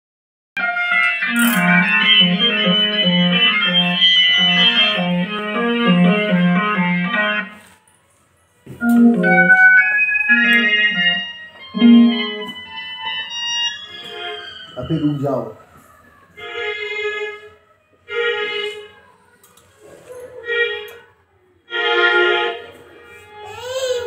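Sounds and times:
electronic keyboard music: 0.6s - 7.7s, 8.8s - 15.7s.

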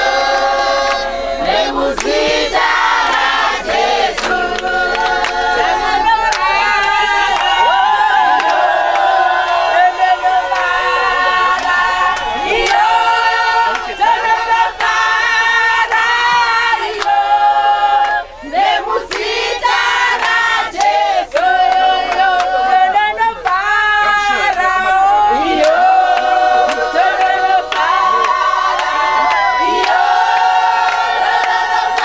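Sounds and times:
women singing in chorus: 0.0s - 32.0s
hand claps: 1.9s - 2.2s, 3.0s - 5.5s, 6.2s - 9.6s, 11.5s - 12.9s, 13.7s - 13.9s, 16.9s - 17.2s, 19.1s - 19.3s, 25.6s - 32.0s.

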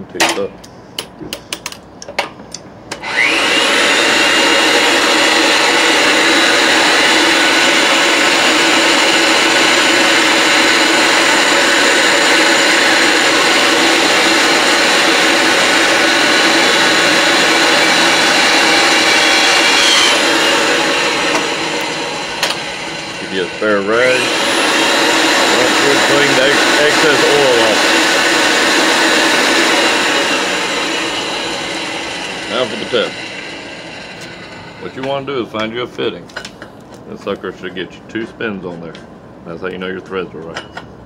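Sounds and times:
pipe threader motor running: 2.9s - 35.8s.

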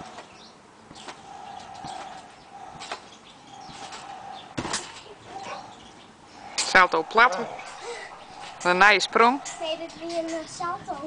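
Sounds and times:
trampoline springs creaking: 0.0s - 11.0s
jumper landing on trampoline mat: 4.6s - 5.1s.

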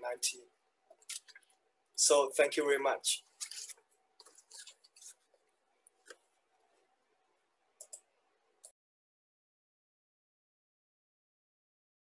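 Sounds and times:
faint clicks: 7.8s - 8.7s.

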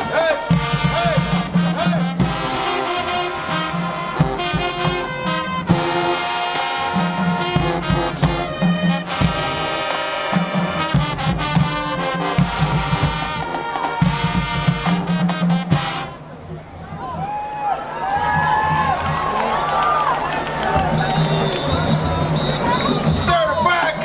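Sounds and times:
brass and saxophones playing: 0.0s - 16.4s
punchy low brass notes: 0.0s - 16.4s
drumline: 0.0s - 24.0s.

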